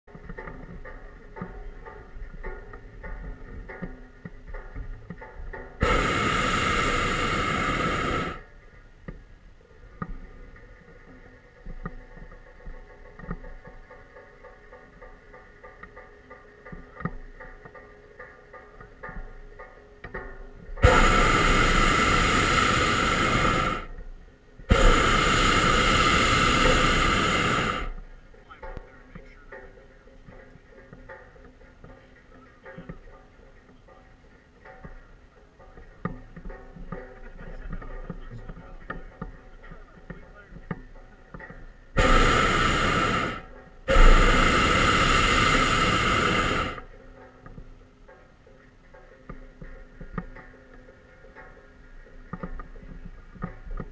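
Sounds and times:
propane burner hissing: 0:05.8 - 0:08.5, 0:20.8 - 0:24.0, 0:24.7 - 0:28.1, 0:42.0 - 0:46.9.

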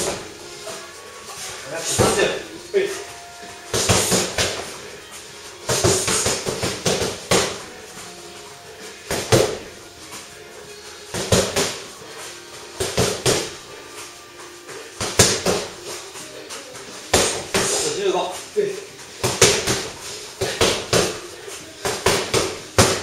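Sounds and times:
gloved punches on punching bag: 0:03.7 - 0:04.7, 0:05.7 - 0:07.6, 0:09.1 - 0:09.6, 0:11.1 - 0:11.8, 0:12.8 - 0:13.6, 0:15.0 - 0:15.8, 0:17.1 - 0:17.8, 0:19.2 - 0:21.2, 0:21.8 - 0:23.0.

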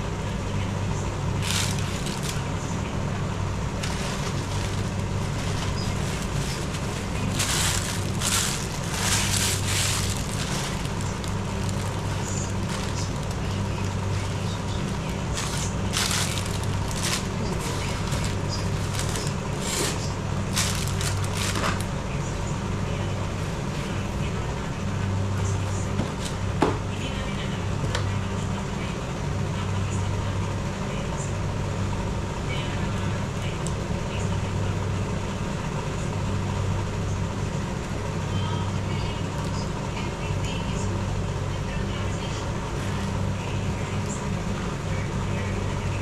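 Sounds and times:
steady low hum: 0:00.0 - 0:46.0
plastic packaging crinkling: 0:01.4 - 0:02.6, 0:03.7 - 0:21.9.

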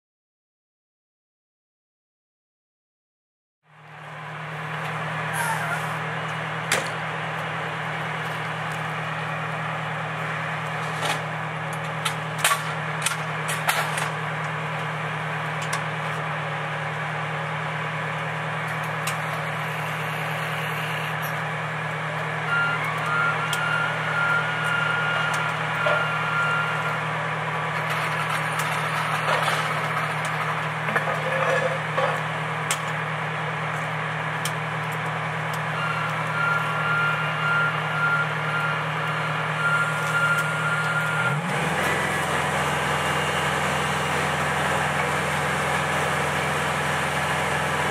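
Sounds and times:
diesel engine idling: 0:03.7 - 0:47.9
pulsing high-pitched tone: 0:19.5 - 0:21.2.

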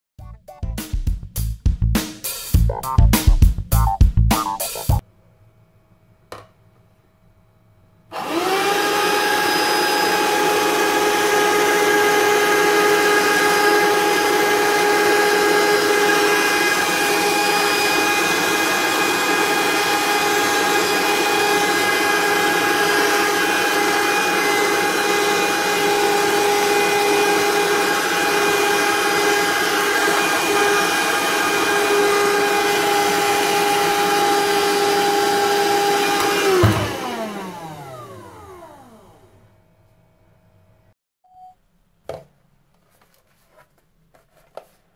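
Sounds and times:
handheld vacuum cleaner motor whine: 0:08.1 - 0:39.5.

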